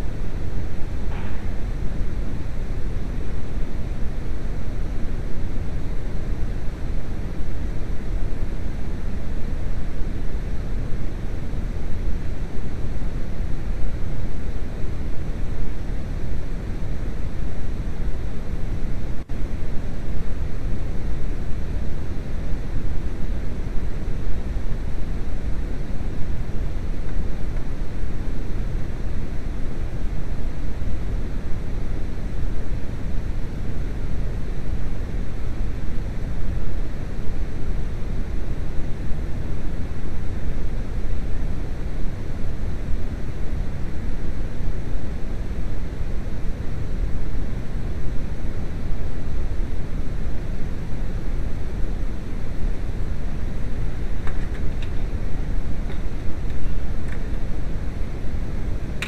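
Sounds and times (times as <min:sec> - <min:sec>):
steady low rumbling: 0:00.0 - 0:03.1.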